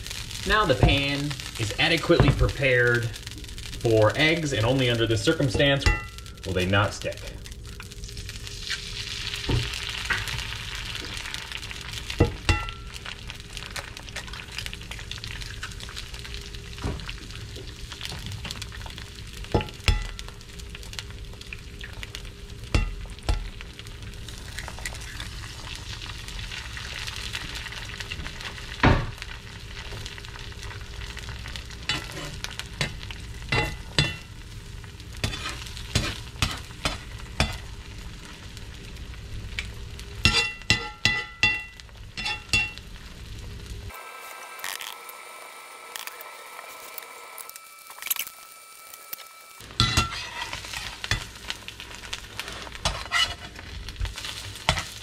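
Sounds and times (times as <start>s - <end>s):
eggs sizzling in skillet: 0.0s - 55.0s.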